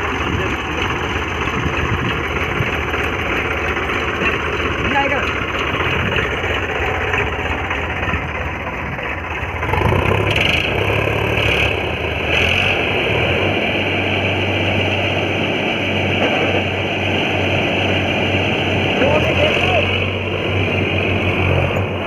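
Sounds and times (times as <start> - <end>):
diesel tractor engines droning: 0.0 - 22.0.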